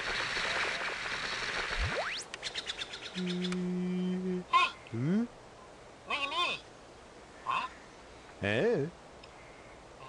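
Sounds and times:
steady low hum: 0.0s - 10.0s
grunt-like voice: 3.2s - 5.3s.

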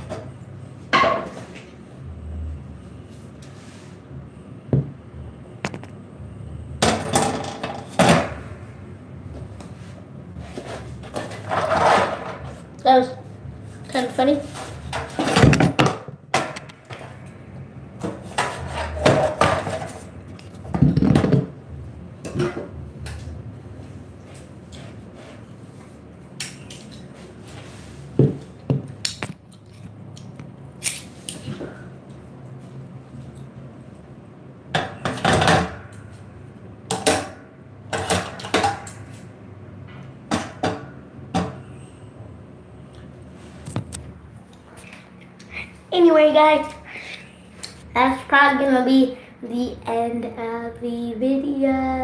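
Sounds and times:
low steady hum: 0.0s - 52.0s
knocks and clattering thumps: 14.9s - 16.8s, 20.7s - 21.6s.

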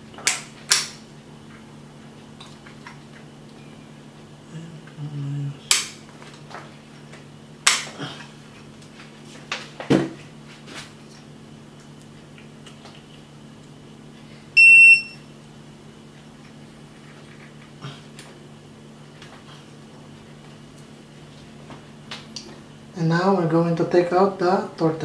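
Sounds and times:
short electronic beep: 14.6s - 15.2s.

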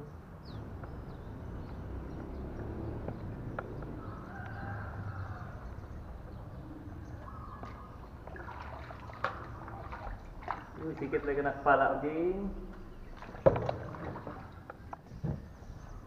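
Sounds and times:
drawn-out bird calls: 0.4s - 16.0s
paddle stroking through water: 7.6s - 11.6s, 12.8s - 15.0s.

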